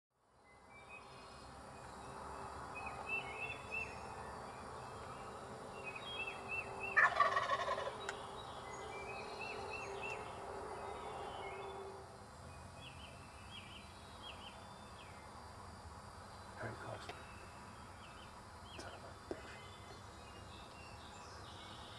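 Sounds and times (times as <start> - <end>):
songbird chirping: 0.3 - 21.9
turkey gobbling: 6.9 - 8.0.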